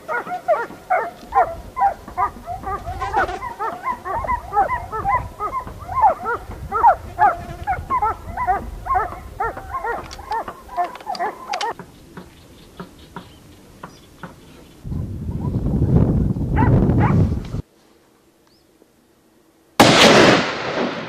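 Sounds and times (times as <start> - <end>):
dogs baying and barking: 0.0 - 11.8, 16.5 - 17.3.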